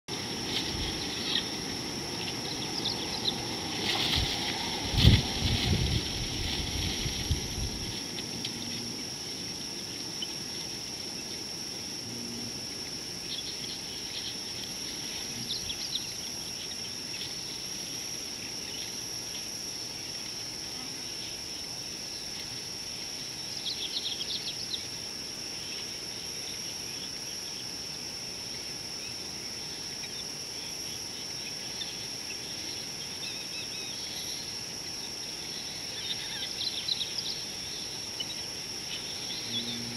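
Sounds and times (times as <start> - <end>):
high-pitched insect drone: 0.1 - 39.9
low rumble on microphone: 0.2 - 9.1.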